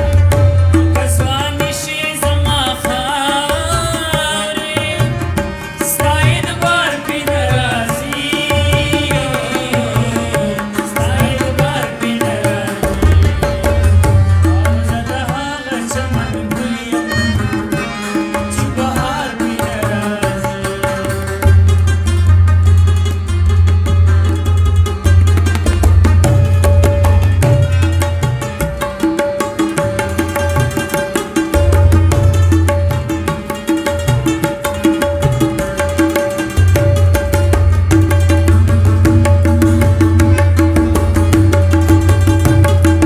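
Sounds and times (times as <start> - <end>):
repeating drum beat: 0.0 - 23.1, 23.7 - 43.0
person singing over music: 18.6 - 21.3.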